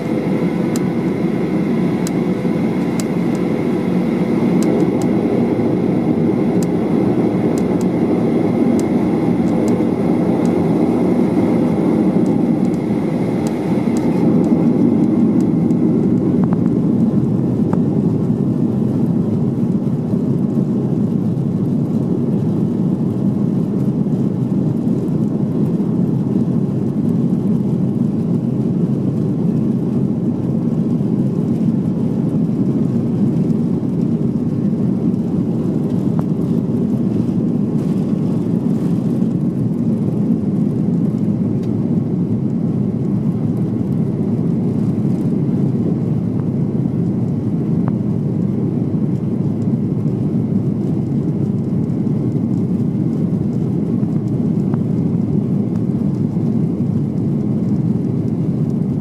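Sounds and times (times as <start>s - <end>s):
airplane cabin engine noise: 0.0s - 59.0s.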